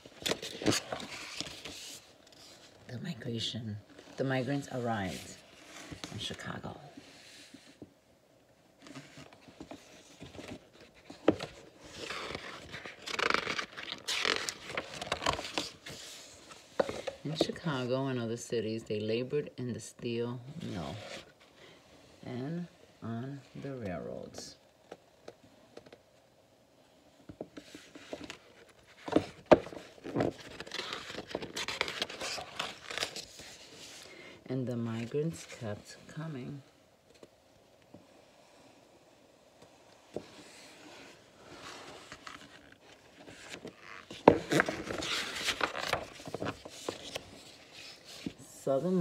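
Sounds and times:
paper page rustling: 0:00.0 - 0:02.8, 0:08.8 - 0:17.6, 0:27.6 - 0:34.2, 0:40.1 - 0:49.0.

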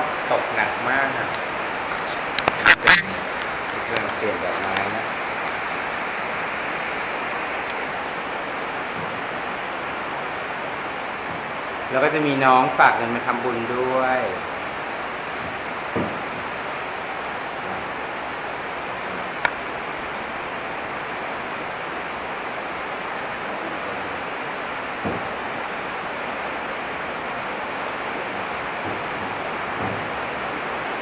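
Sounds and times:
heavy rain falling: 0:00.0 - 0:31.0
soft knocks: 0:15.4 - 0:16.5, 0:25.0 - 0:25.4, 0:28.8 - 0:30.2.

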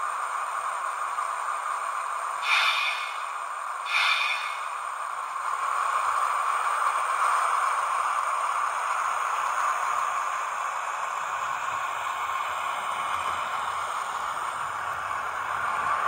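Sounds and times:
model train whirring on track: 0:00.0 - 0:16.0
short high-pitched whistle blasts: 0:02.4 - 0:04.9.

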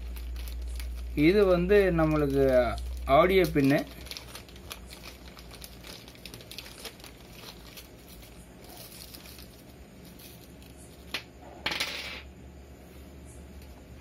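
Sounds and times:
plastic bag crinkling: 0:00.0 - 0:11.1.

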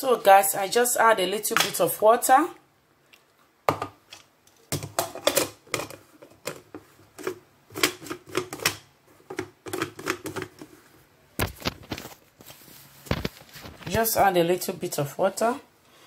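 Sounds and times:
plastic lid clicking and rattling: 0:04.8 - 0:10.7.

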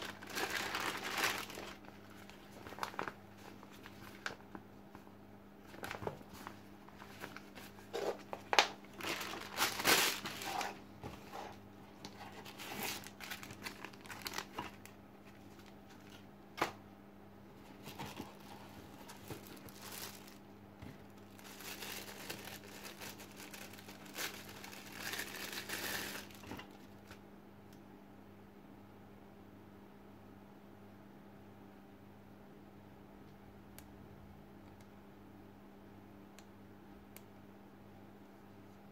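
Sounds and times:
plastic wrap crinkling: 0:00.0 - 0:04.6, 0:05.7 - 0:10.8, 0:12.0 - 0:16.2, 0:17.8 - 0:27.2.

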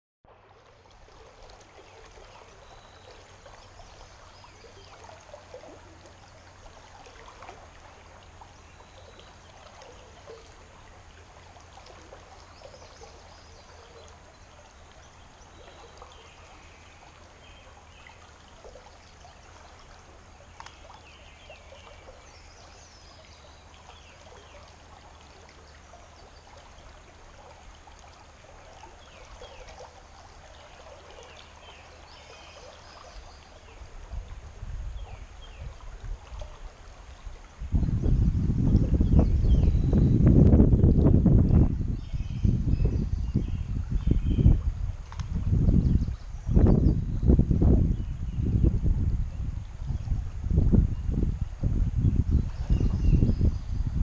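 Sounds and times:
river flowing over riffle: 0:00.3 - 0:41.6.

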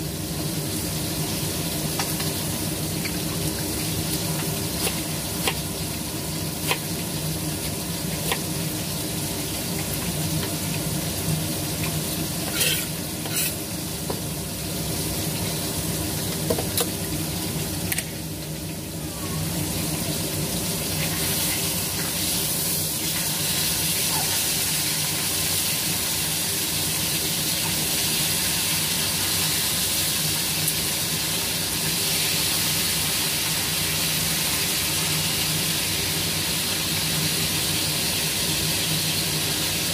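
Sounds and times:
food sizzling in a frying pan: 0:00.0 - 0:39.9
utensil stirring and scraping: 0:12.4 - 0:13.6.

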